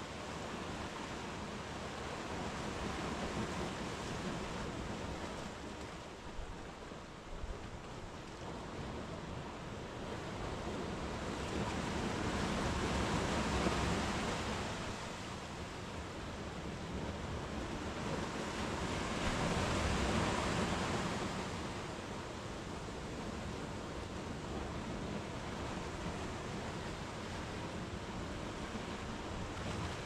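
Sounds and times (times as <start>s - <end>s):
sea waves breaking on a beach: 0.0s - 30.0s.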